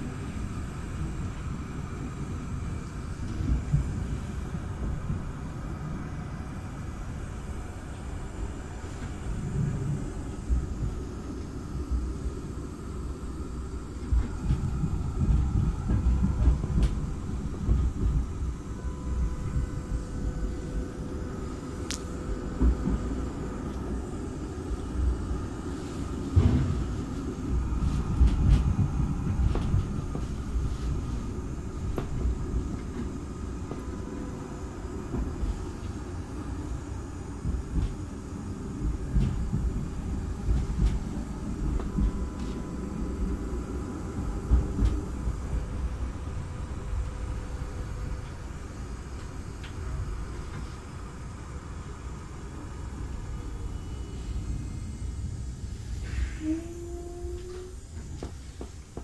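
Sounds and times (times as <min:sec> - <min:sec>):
faint steady whine: 0:00.0 - 0:59.0
tram wheels rumbling on track: 0:00.0 - 0:59.0.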